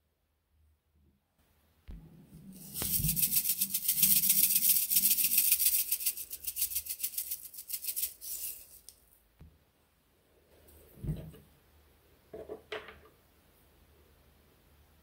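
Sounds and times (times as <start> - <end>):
sequins rattling in plastic shaker: 2.6 - 9.0.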